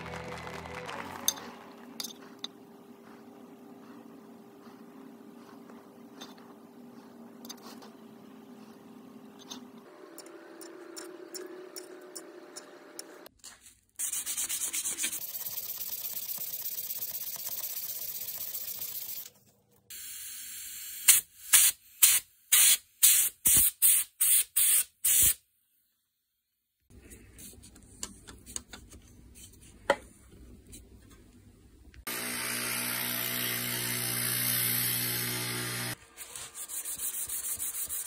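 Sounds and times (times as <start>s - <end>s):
rasping sanding strokes: 36.2s - 38.0s.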